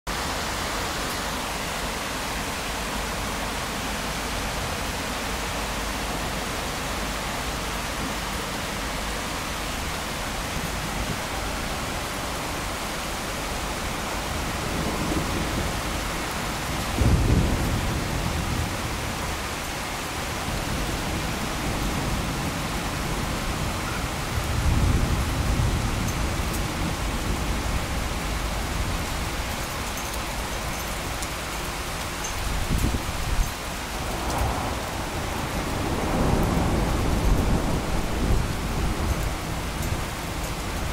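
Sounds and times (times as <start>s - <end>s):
rain falling: 0.1s - 40.9s
thunder rumbling: 13.4s - 29.6s, 32.4s - 40.9s.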